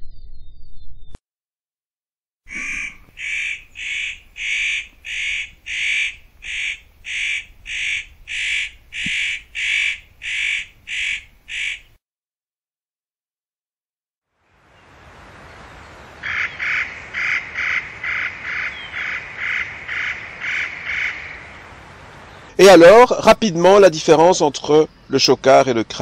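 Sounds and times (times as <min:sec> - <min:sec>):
bird giving harsh calls: 0:02.5 - 0:12.0, 0:16.2 - 0:21.7.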